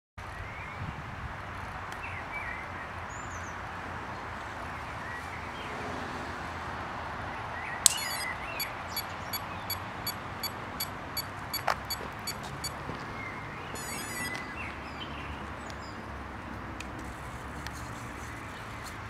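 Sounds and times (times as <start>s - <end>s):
birds chirping: 7.6s - 16.0s
short high electronic beeps: 7.9s - 12.4s, 13.8s - 14.4s.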